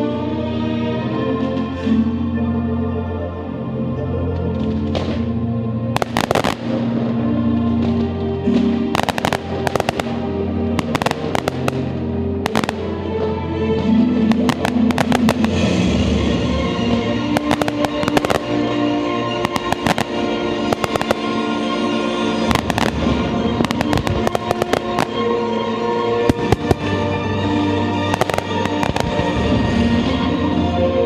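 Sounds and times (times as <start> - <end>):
music with held notes: 0.0 - 31.0
fireworks bursting: 6.0 - 13.2, 13.8 - 30.3.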